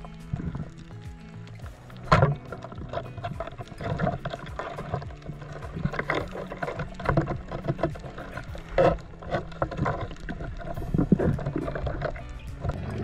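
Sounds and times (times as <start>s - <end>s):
muffled underwater knocks: 1.6s - 13.0s.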